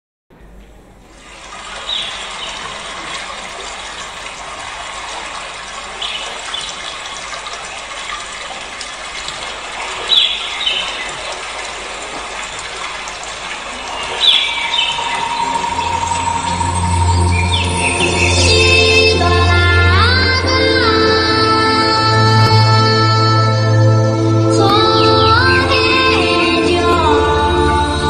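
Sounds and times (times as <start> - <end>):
birds chirping: 0.8 - 20.8
rushing stream: 0.9 - 28.0
held synth note of dance music: 14.5 - 21.3.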